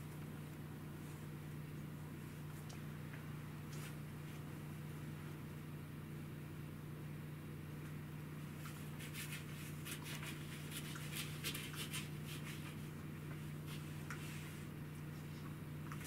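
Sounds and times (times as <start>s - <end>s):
steady low hum: 0.0s - 16.0s
cat claws scratching fur: 8.5s - 16.0s.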